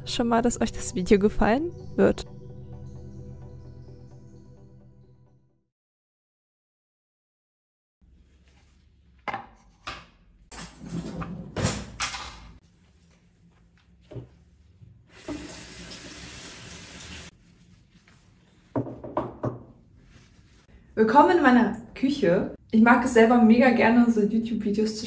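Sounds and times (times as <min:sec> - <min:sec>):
water tap running: 0:15.1 - 0:17.3.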